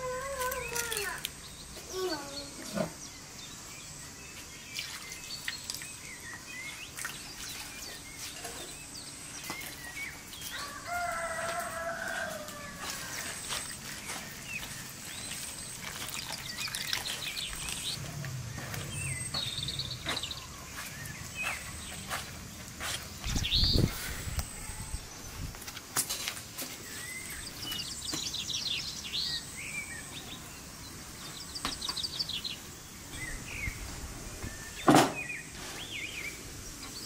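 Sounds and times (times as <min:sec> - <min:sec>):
small birds chirping: 0:00.0 - 0:25.9, 0:26.6 - 0:37.0
hands squishing wet dough: 0:11.1 - 0:18.0.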